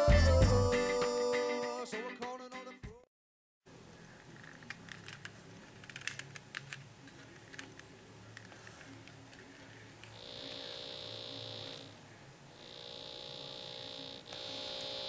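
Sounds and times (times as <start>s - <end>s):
steady electrical buzz from radio: 6.8s - 15.0s
radio static with crackles: 7.0s - 15.0s.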